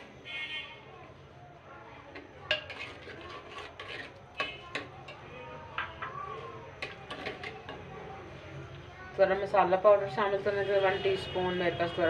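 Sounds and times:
spoon scraping a clay pot: 2.2s - 5.2s, 6.8s - 7.9s.

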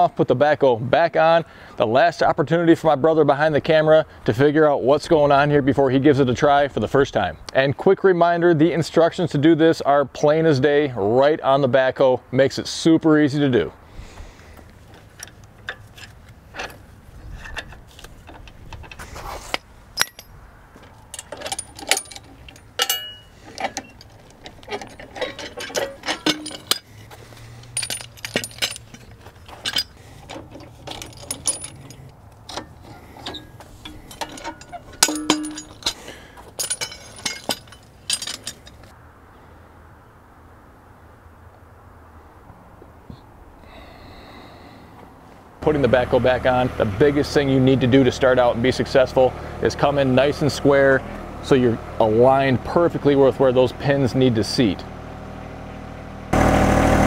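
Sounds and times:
metal clanks and clinks: 14.9s - 38.9s.

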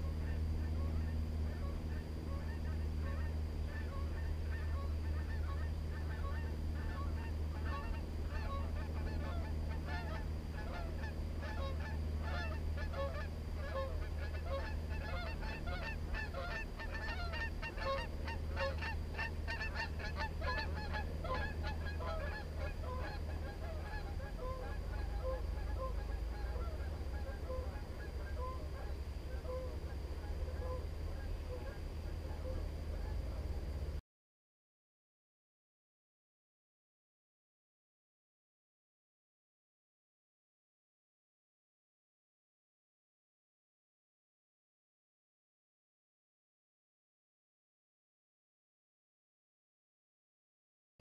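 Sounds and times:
geese honking: 0.0s - 33.7s
steady low rumble: 0.0s - 34.0s.

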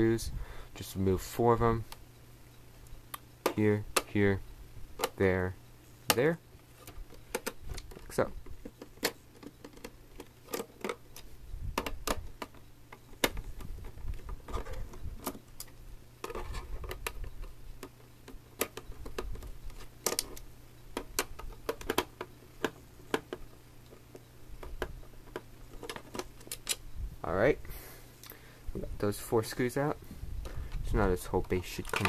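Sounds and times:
plastic handling noise: 6.0s - 26.8s, 30.4s - 32.0s.

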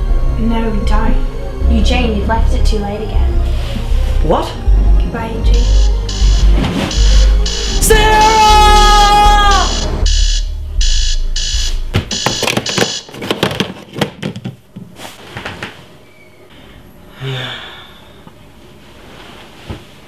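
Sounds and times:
alarm clock beeping: 5.5s - 13.2s.

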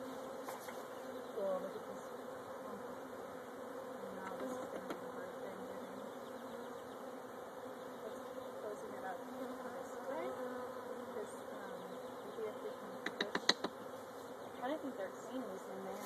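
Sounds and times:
honeybees buzzing: 0.0s - 16.0s
sharp clicks: 13.0s - 13.7s.

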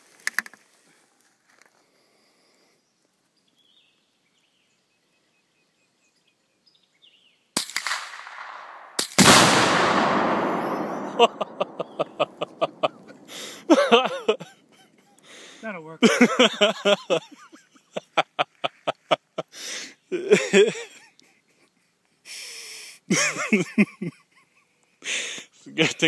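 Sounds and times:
rifle shot: 7.6s - 13.3s
exploding target blast: 7.7s - 13.3s.

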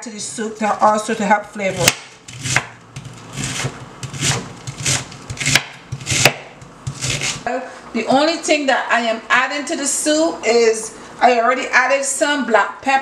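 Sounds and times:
knife shredding cabbage: 0.8s - 7.5s.

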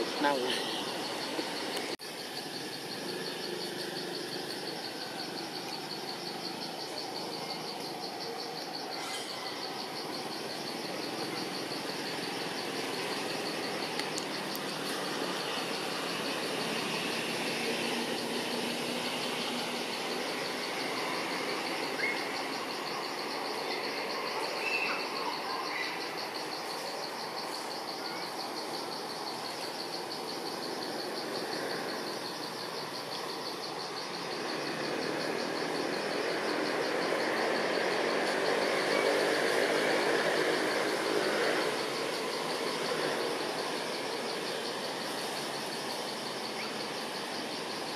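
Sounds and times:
insects trilling: 0.0s - 47.9s
background hiss: 26.0s - 47.9s.

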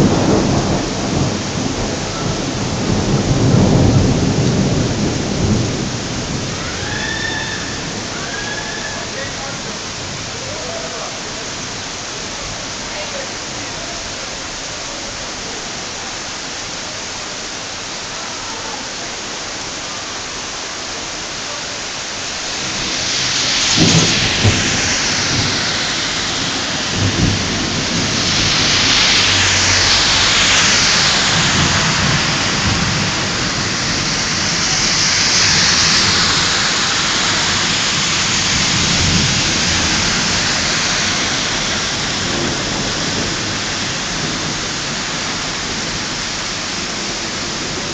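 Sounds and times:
sharp thunderclap: 0.0s - 7.0s, 22.2s - 46.2s
thunder rumbling: 0.0s - 14.6s, 21.8s - 47.9s
heavy rain pouring: 0.0s - 47.9s.

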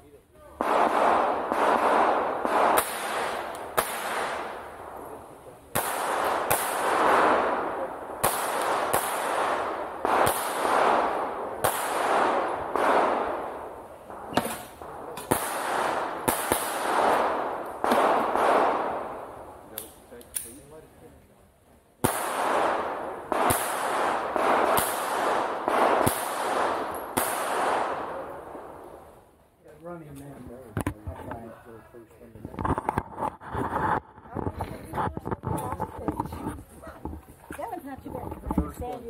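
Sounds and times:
gunshots with long echo: 0.6s - 19.6s, 22.0s - 29.2s.

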